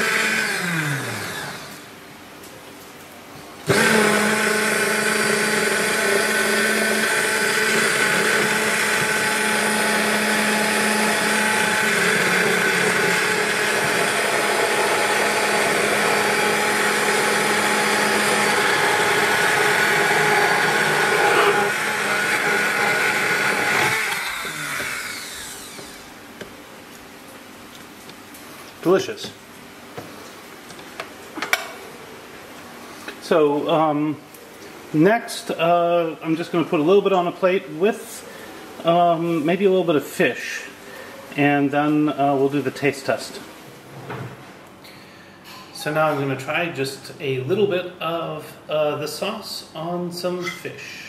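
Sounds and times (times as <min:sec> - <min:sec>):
hand blender running: 0:00.0 - 0:01.8, 0:03.7 - 0:26.1.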